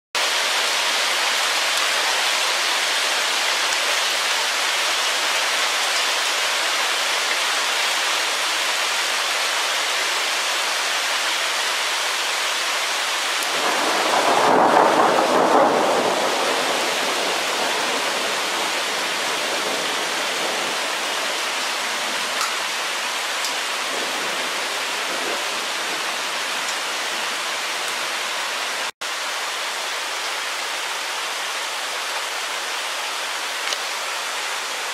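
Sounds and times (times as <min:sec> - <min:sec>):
hail and rain pelting down: 0:00.2 - 0:28.9
thunder rumble: 0:13.5 - 0:21.1.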